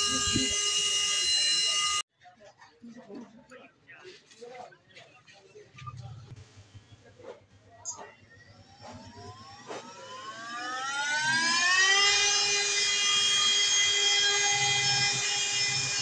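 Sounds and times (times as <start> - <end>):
small electric motor whine: 0.0 - 2.0, 8.7 - 16.0.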